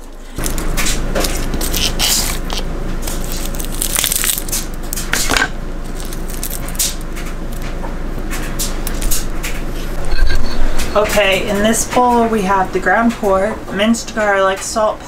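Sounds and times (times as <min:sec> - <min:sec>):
garlic skins crackling and rustling: 0:00.0 - 0:07.7
low hum: 0:00.0 - 0:15.0.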